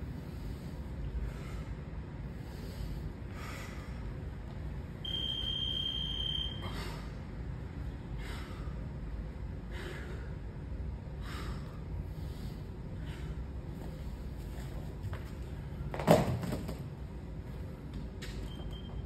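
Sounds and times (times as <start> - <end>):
steady low rumble: 0.0 - 16.0
long high timer beep: 5.0 - 6.6
person breathing out hard: 8.1 - 8.9, 9.6 - 10.4, 11.2 - 13.5.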